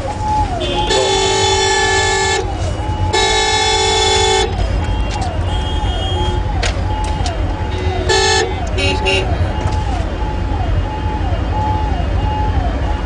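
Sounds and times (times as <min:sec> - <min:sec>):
street traffic: 0:00.0 - 0:13.0
sliding horn tones: 0:00.5 - 0:09.9
vehicle horn blasts: 0:00.6 - 0:02.4, 0:03.1 - 0:06.4, 0:07.7 - 0:09.4.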